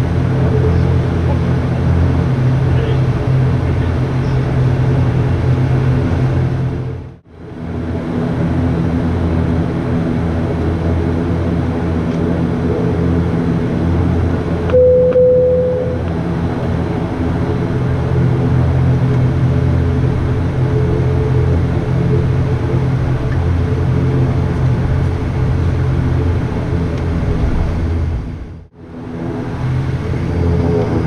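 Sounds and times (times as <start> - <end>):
turboprop engines droning: 0.0 - 31.0
short steady tone: 14.7 - 16.1.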